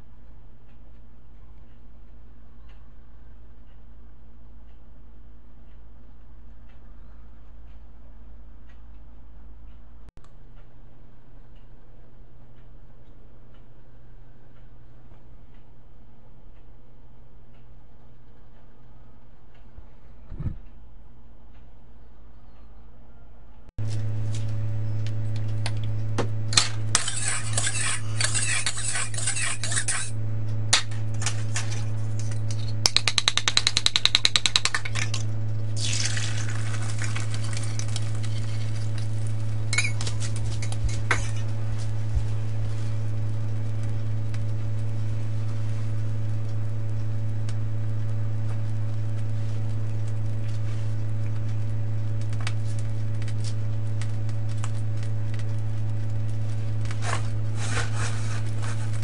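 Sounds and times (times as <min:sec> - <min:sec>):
low hum: 0:00.0 - 0:33.8, 0:34.6 - 0:59.0
eggs beaten in a bowl: 0:26.6 - 0:30.2, 0:32.4 - 0:35.1
egg sizzling in a wok: 0:35.7 - 0:59.0.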